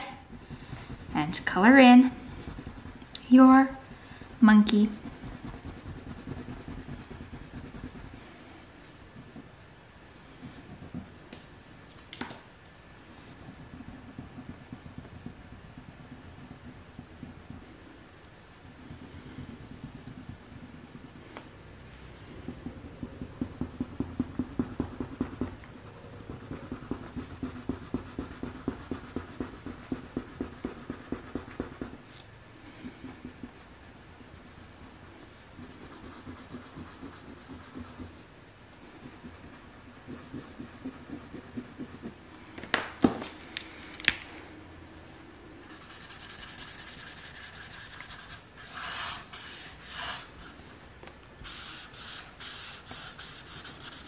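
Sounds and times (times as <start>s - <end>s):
crayon scribbling on paper: 0.0s - 8.3s, 13.4s - 17.7s, 18.4s - 21.2s, 22.2s - 32.0s, 32.8s - 38.2s, 38.8s - 42.2s, 45.7s - 50.6s, 51.4s - 54.0s
marker rubbing on paper: 0.0s - 8.3s, 13.4s - 17.8s, 18.4s - 21.4s, 22.2s - 32.0s, 32.7s - 38.2s, 38.8s - 42.2s, 45.7s - 50.6s, 51.4s - 54.0s.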